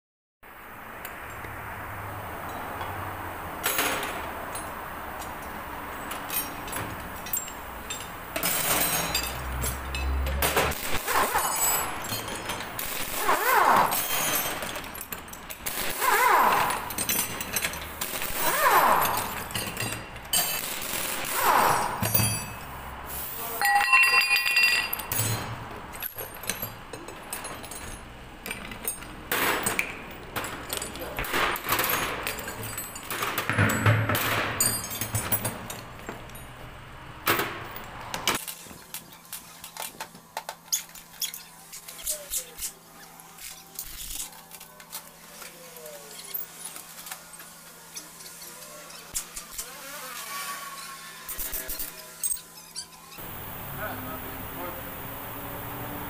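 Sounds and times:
workshop clatter: 0:01.0 - 0:56.0
ringing metallic clinks: 0:03.7 - 0:10.3, 0:22.0 - 0:22.7, 0:23.6 - 0:29.8
pneumatic impact wrench bursts: 0:10.6 - 0:23.4, 0:46.0 - 0:53.6.

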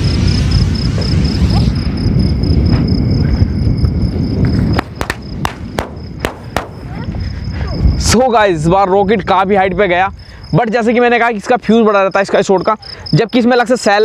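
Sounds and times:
rocket rushing hiss: 0:00.0 - 0:03.3, 0:04.2 - 0:07.5
low rumble: 0:00.0 - 0:10.4
cricket chirping: 0:00.0 - 0:14.0
firework cracks: 0:04.4 - 0:07.2.

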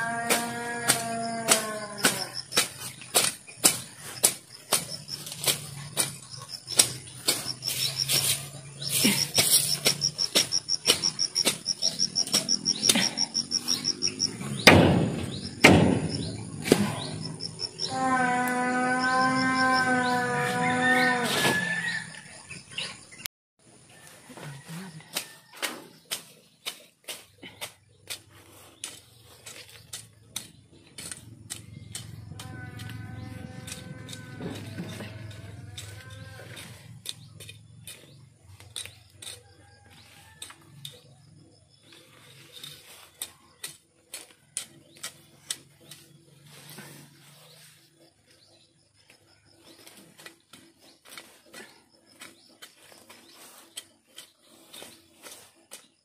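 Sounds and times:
knife hacking through grass: 0:00.2 - 0:17.2, 0:25.1 - 0:32.2
cow mooing: 0:17.8 - 0:22.0, 0:32.0 - 0:36.8.

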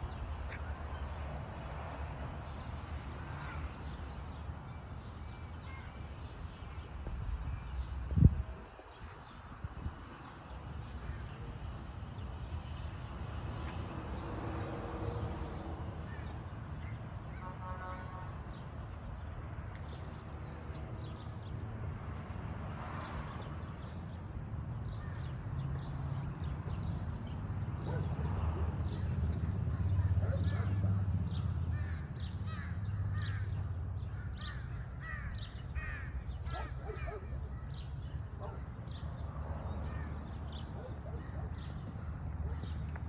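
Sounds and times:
low street rumble: 0:00.0 - 0:19.6.

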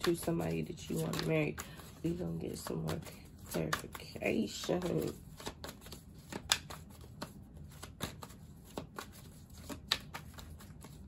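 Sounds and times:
cards being shuffled: 0:00.0 - 0:11.0.

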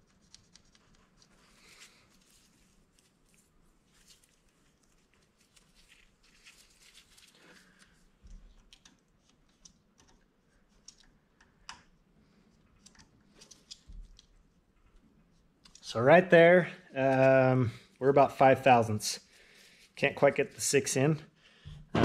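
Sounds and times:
small metal clicks and ticks: 0:00.0 - 0:01.5, 0:07.8 - 0:15.0, 0:15.6 - 0:16.0
gloved hands rustling: 0:00.1 - 0:11.4
low thump: 0:21.7 - 0:22.0.

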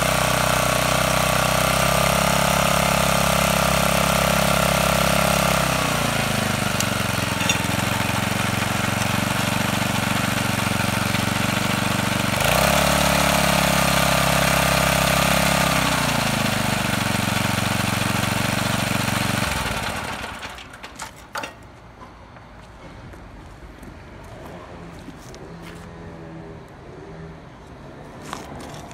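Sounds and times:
tiller engine revving and idling: 0:00.0 - 0:21.5.

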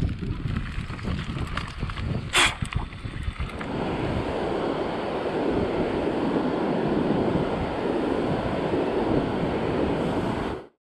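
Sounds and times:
wind noise on microphone: 0:00.0 - 0:10.8
ocean surf washing onto beach: 0:03.5 - 0:10.7.

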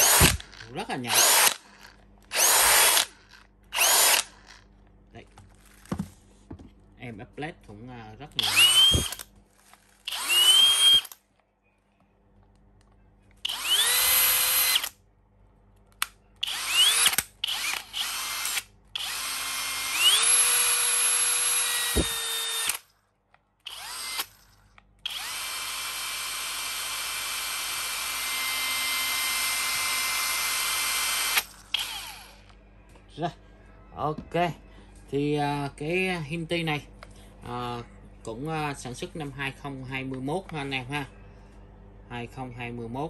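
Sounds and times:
cordless drill motor whine: 0:00.0 - 0:03.1, 0:03.8 - 0:04.6, 0:08.4 - 0:09.3, 0:10.0 - 0:11.2, 0:13.4 - 0:15.0, 0:16.4 - 0:22.8, 0:23.7 - 0:24.3, 0:25.0 - 0:32.5.

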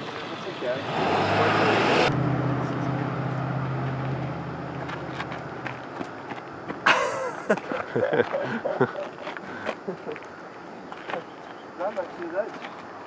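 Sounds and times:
people talking: 0:00.0 - 0:03.1, 0:07.0 - 0:10.2, 0:11.1 - 0:12.6
passing vehicle engine hum: 0:00.2 - 0:06.8.

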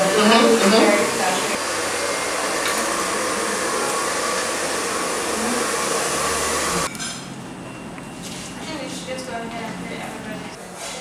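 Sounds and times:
electric blower rushing: 0:00.0 - 0:06.9.

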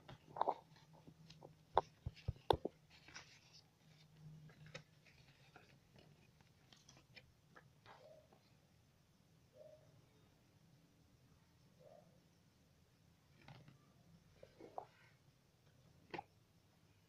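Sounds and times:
paper rustling: 0:00.2 - 0:07.3.

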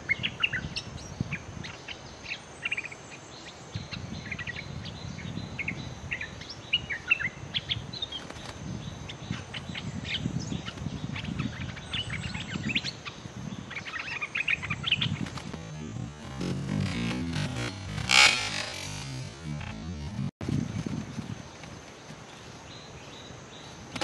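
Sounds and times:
birds chirping and chattering: 0:05.6 - 0:20.3.

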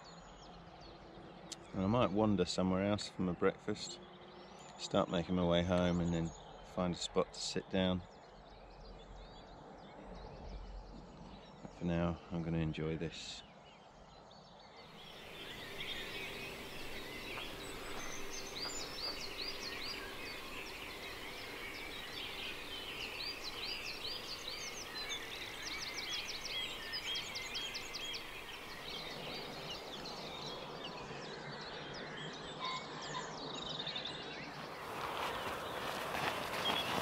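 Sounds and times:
birds chirping: 0:00.0 - 0:37.0
steady outdoor hiss: 0:00.0 - 0:37.0
bird trill: 0:03.9 - 0:37.0.

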